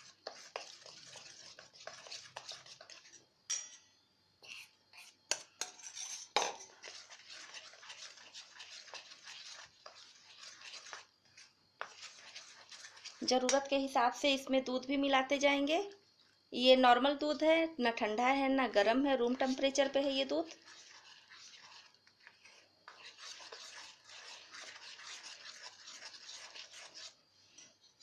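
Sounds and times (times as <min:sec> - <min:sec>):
spoon stirring batter in bowl: 0:00.0 - 0:16.0, 0:17.0 - 0:28.0
spoon clinking on steel bowl: 0:03.5 - 0:03.9.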